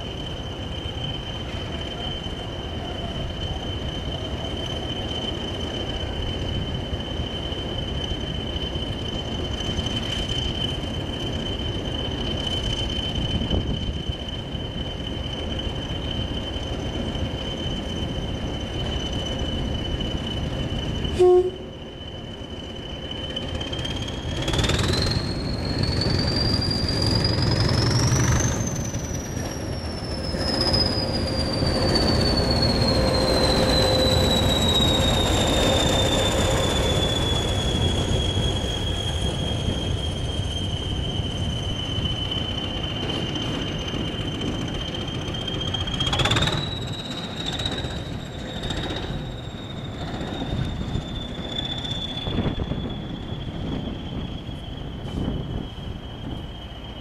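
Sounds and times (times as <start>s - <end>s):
diesel locomotive engine rumble: 0.0s - 57.0s
turbocharger whistle: 21.0s - 22.0s, 23.4s - 56.9s.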